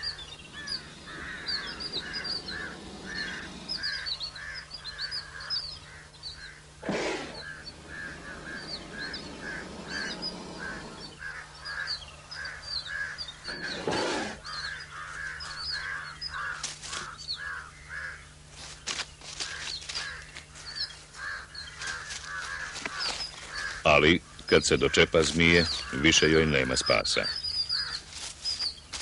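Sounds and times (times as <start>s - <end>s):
high bird chirps: 0.0s - 16.5s
harsh bird calls: 0.0s - 29.0s.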